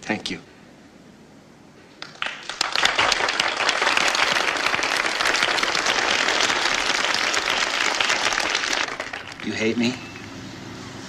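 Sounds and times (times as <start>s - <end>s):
audience applause: 2.0s - 9.9s.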